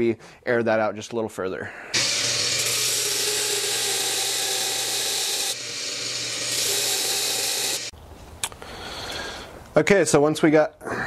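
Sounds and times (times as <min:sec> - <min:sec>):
belt grinder rasping on metal: 0:02.0 - 0:07.9
electric motor hum: 0:02.0 - 0:07.9.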